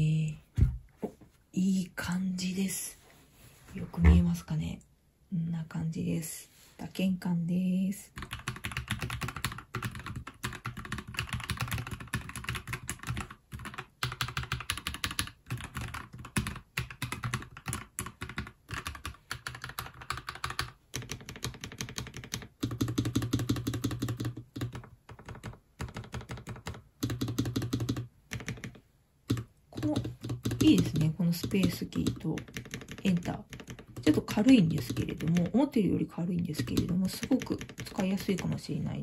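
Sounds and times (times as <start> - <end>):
mechanical keyboard typing: 8.2 - 35.7, 36.4 - 38.6.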